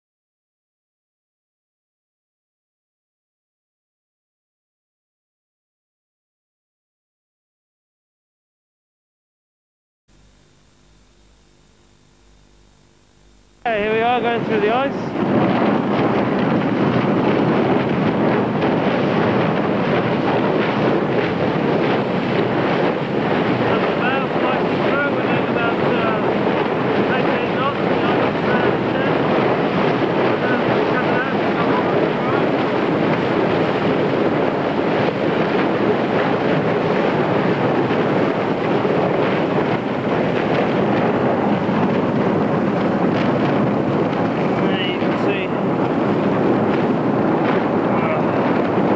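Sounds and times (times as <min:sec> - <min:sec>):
wind on microphone: 0:13.7 - 0:48.9
ice grinding along ship hull: 0:13.8 - 0:48.9.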